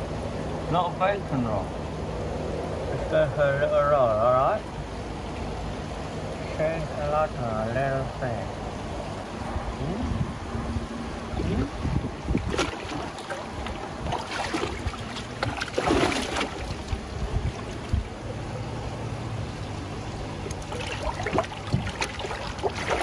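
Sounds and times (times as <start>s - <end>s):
water sloshing in a plastic tub: 11.1s - 23.0s.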